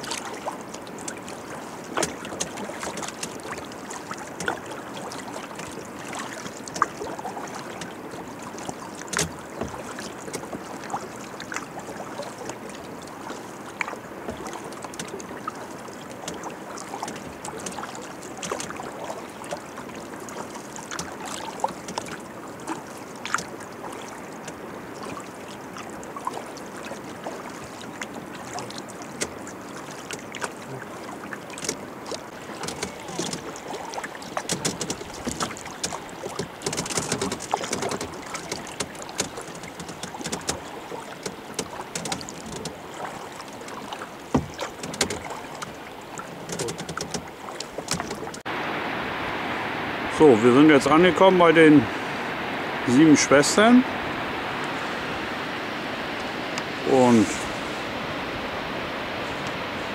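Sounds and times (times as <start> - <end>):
paddle splashes and drips: 0.0 - 59.9
steady wash of water: 0.0 - 59.9.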